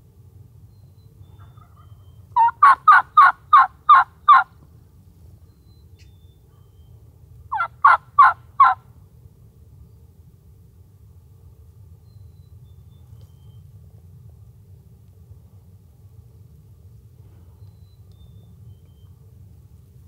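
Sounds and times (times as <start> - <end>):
turkey gobbling: 1.4 - 4.5, 7.5 - 8.8.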